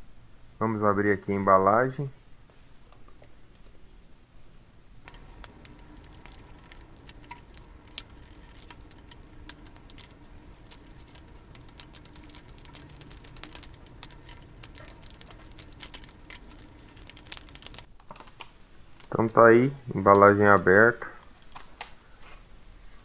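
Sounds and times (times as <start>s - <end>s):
utility knife cutting plastic: 5.1s - 17.9s
packaging crinkling: 5.1s - 19.1s.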